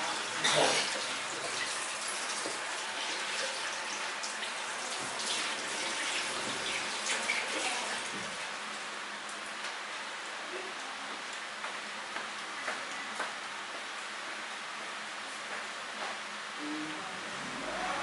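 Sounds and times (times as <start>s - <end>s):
tap water running: 0.0s - 8.8s.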